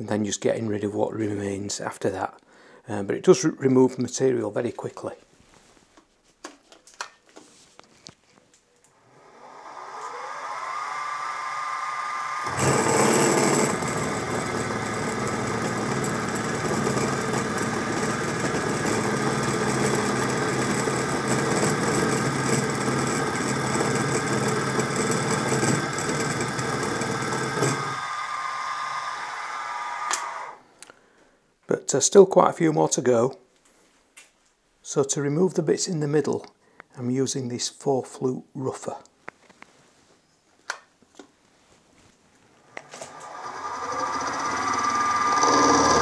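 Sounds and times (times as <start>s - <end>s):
mill spindle whining: 8.9s - 30.6s, 42.6s - 46.0s
drill cutting metal: 9.0s - 30.6s, 42.8s - 46.0s.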